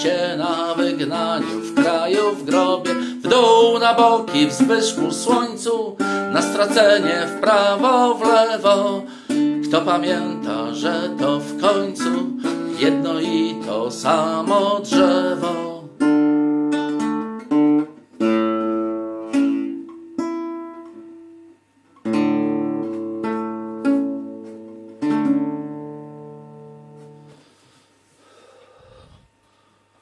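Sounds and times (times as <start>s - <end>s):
classical guitar strummed chords: 0.0s - 27.8s.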